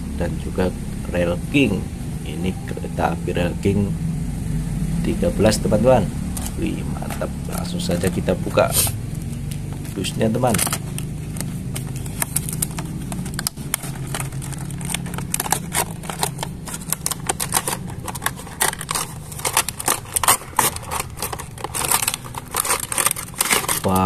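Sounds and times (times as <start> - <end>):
low steady hum: 0.0 - 24.0
cardboard box scrapes and rustles: 10.4 - 24.0.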